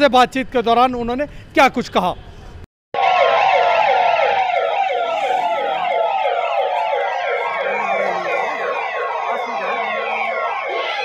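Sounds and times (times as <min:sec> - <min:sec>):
sirens wailing: 0:03.0 - 0:11.0
steady held siren tone: 0:03.0 - 0:11.0.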